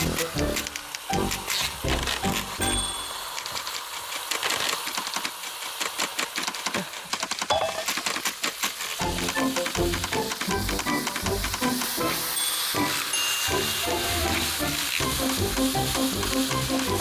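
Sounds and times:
fat crackling and spitting: 3.3 - 12.3, 13.9 - 17.0.

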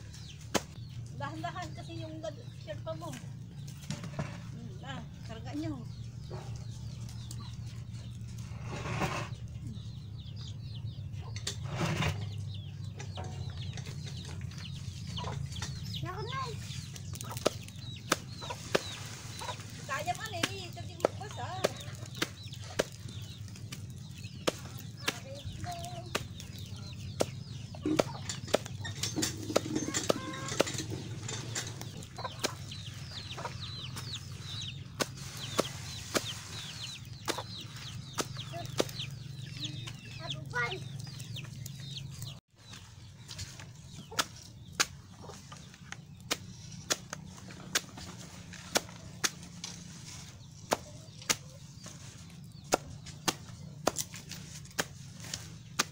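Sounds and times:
chicks peeping: 0.0 - 4.0, 5.0 - 55.9
chickens clucking: 0.0 - 55.9
knife chopping stalks: 20.2 - 28.8, 34.9 - 39.2, 44.1 - 45.1, 46.0 - 49.8, 52.6 - 55.9.

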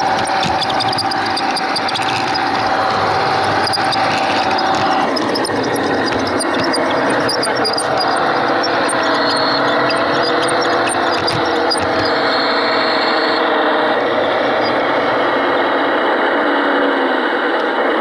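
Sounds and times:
small metallic clicks: 0.0 - 12.2
model train wheels rumbling on rails: 0.0 - 13.3.

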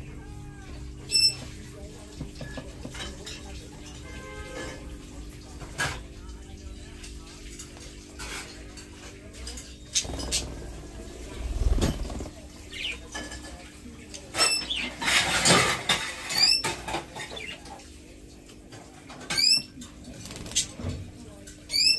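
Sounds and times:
birds rustling and scratching: 0.6 - 6.1, 6.8 - 21.9
parakeets chirping: 1.0 - 4.0, 9.6 - 13.4, 21.7 - 21.9
birds pecking at seed dish: 6.6 - 17.8.

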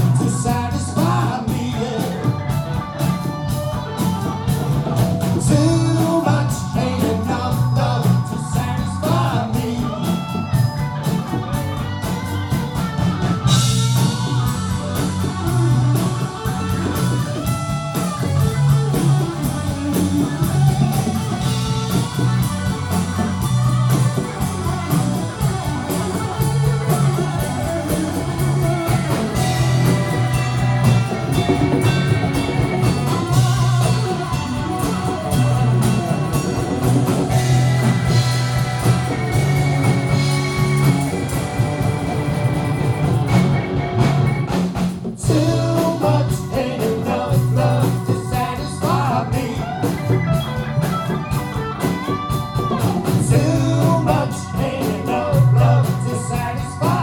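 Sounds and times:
lead vocalist singing: 0.0 - 3.0, 5.3 - 10.8, 30.8 - 38.2, 45.2 - 50.4, 53.0 - 57.0
drum kit: 0.0 - 57.0
electric guitars: 0.0 - 57.0
low bass pulse: 13.4 - 44.5.

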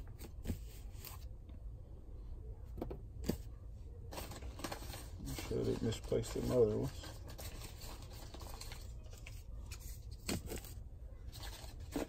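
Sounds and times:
paper packaging rustling: 4.1 - 12.0.

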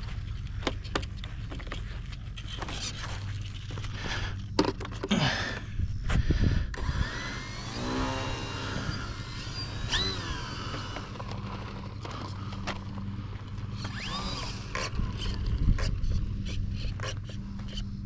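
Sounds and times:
rc plane electric motor whine: 6.7 - 18.0.

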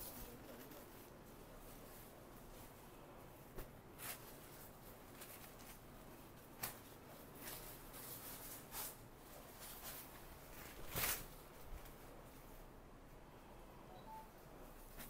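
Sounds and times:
fabric rustling: 0.0 - 12.7
low room hiss: 0.0 - 15.0.

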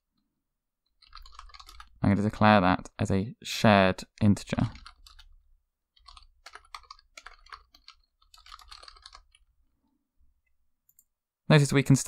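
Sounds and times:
faint keyboard typing: 0.8 - 2.0, 4.1 - 9.6, 10.4 - 11.2.

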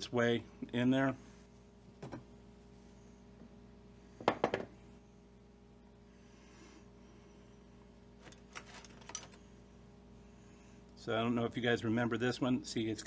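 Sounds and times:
faint steady hum: 0.0 - 13.0
metal tools clicking in plastic tub: 8.2 - 9.4.

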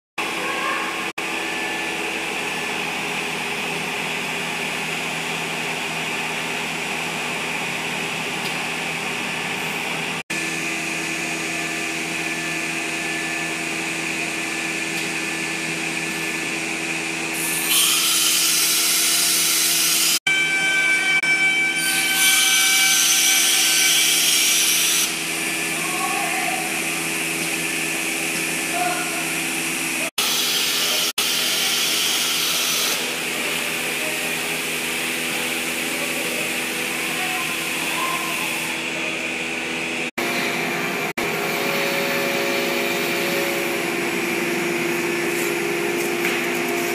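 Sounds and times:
loud high-pitched noise: 17.3 - 46.0.

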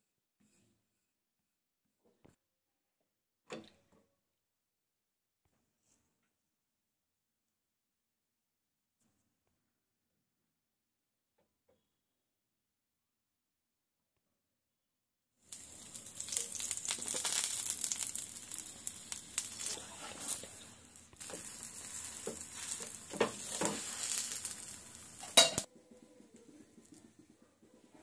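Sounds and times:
oil sizzling and crackling: 15.4 - 25.7
steel spoon scraping and tapping: 21.2 - 25.7.

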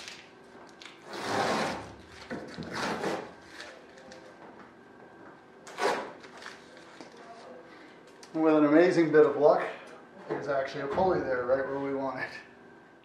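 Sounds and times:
masking tape tearing off: 5.7 - 6.4.

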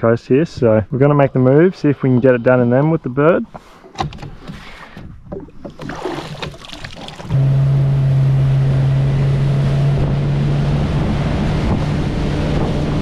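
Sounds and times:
wind: 0.0 - 13.0
handling clicks and knocks: 2.0 - 5.8
outboard engine running: 4.9 - 13.0
water rushing: 5.3 - 13.0.

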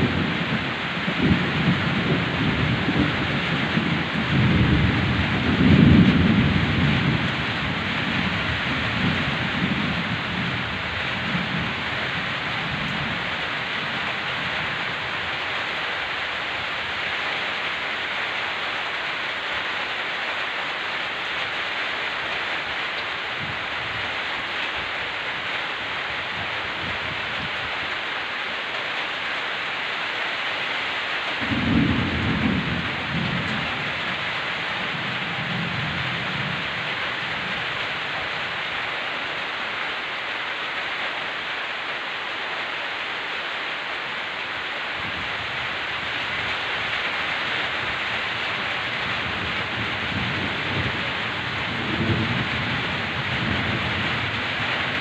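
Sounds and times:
thunder rolling: 0.0 - 13.3, 31.4 - 37.7, 48.6 - 55.0
heavy rain: 0.0 - 55.0.

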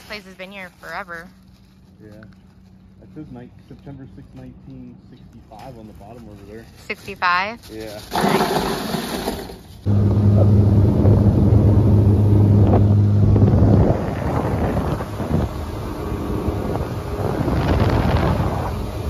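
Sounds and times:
outboard motor drone: 8.1 - 19.0
wind buffeting microphone: 9.9 - 19.0.

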